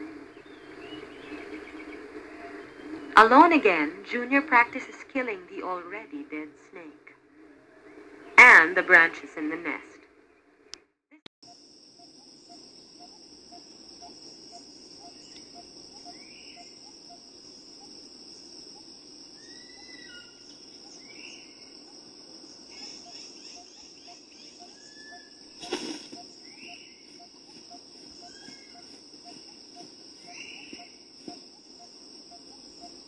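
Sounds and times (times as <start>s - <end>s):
high-pitched insect drone: 11.5s - 33.0s
bird chirps: 12.0s - 18.0s, 18.7s - 33.0s.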